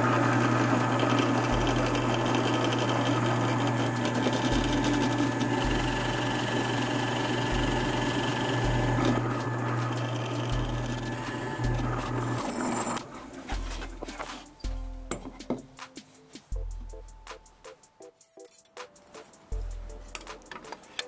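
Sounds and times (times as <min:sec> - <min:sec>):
drill press boring into wood: 0:00.0 - 0:13.0.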